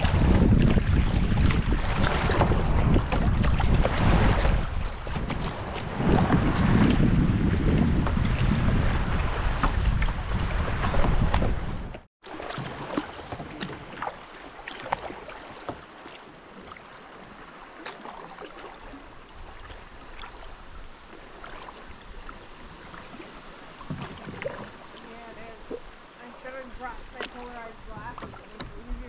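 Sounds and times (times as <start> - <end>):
wind buffeting microphone: 0.0 - 12.1, 19.2 - 29.0
water lapping: 0.0 - 29.0
small splashes and drips: 12.2 - 23.2.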